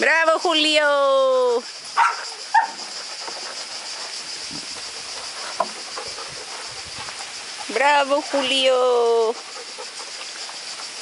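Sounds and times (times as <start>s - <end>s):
steady high hiss: 0.0s - 11.0s
dog barking: 2.0s - 2.8s.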